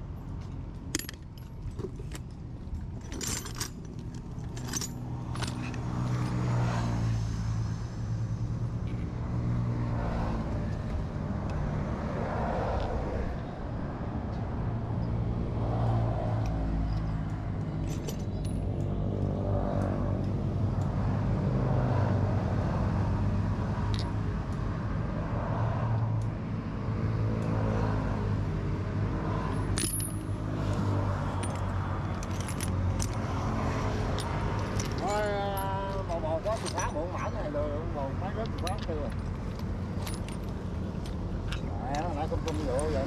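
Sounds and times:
metal parts clinking: 0.4 - 6.3, 17.8 - 18.8, 29.6 - 37.0, 38.4 - 43.0.

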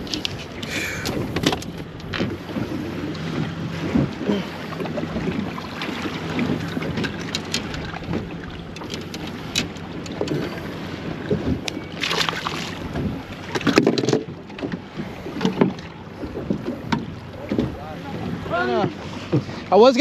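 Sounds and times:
wind buffeting microphone: 0.0 - 19.8
water lapping at boat: 0.0 - 20.0
tackle clicks and knocks: 6.4 - 10.5.

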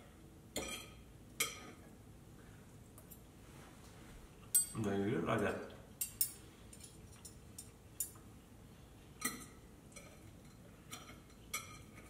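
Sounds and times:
fork clinking on ceramic plate: 9.2 - 12.0.

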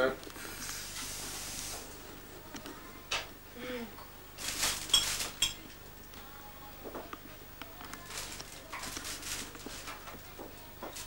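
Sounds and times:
dishes and cutlery clinking: 4.8 - 5.7.

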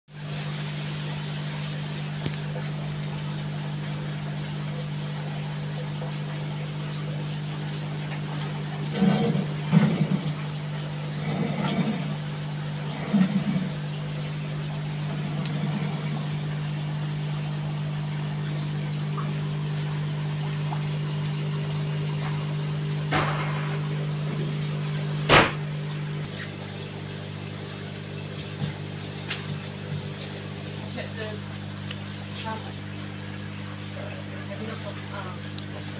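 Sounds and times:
electrical hum of pumps: 0.1 - 35.9
sharp knock: 25.3 - 25.6.

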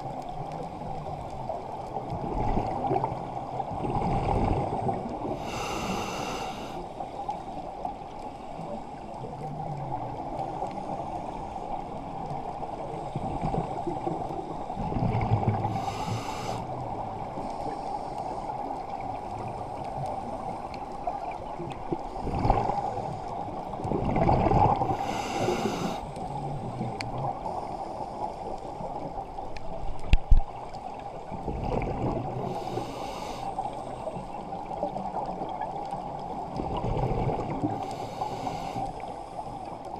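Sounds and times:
underwater hiss: 3.0 - 7.0, 15.5 - 19.6, 24.6 - 28.9, 32.3 - 34.9, 37.1 - 39.8
regulator bubbles gurgling: 23.6 - 27.4, 31.3 - 32.8, 34.1 - 38.3.

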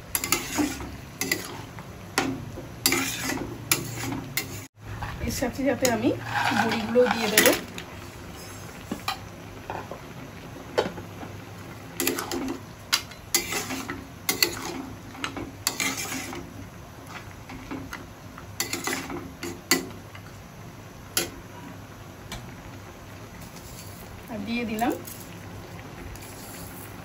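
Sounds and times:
metal spatula scraping metal pot: 0.1 - 1.7, 2.8 - 4.7, 5.8 - 7.6, 13.3 - 14.8, 15.6 - 16.4.

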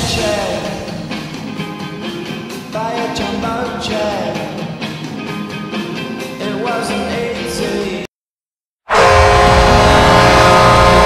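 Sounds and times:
rock song with singing: 0.0 - 8.1.

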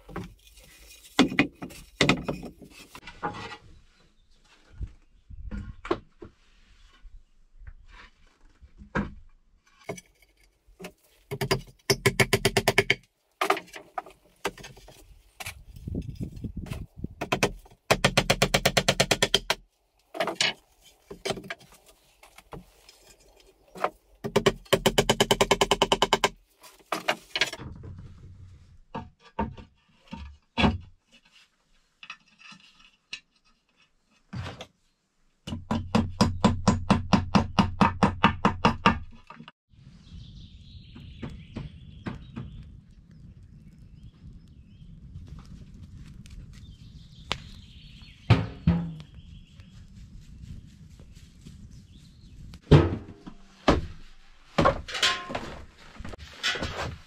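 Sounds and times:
knocks and scrapes: 0.0 - 34.8, 48.2 - 57.0.

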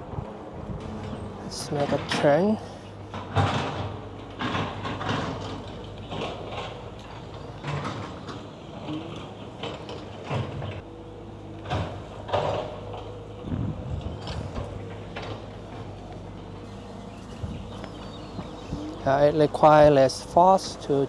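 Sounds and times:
knocks and scrapes: 3.1 - 10.8.

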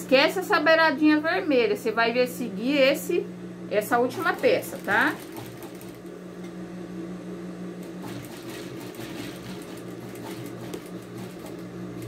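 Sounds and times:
sewing machine motor hum: 3.9 - 6.2, 7.8 - 12.0
sewing machine needle clatter: 4.3 - 6.0, 8.0 - 11.6.

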